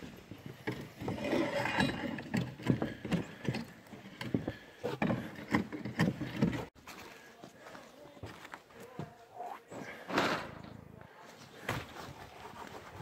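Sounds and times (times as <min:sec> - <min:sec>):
boot footsteps on wooden sheathing: 0:02.2 - 0:09.2.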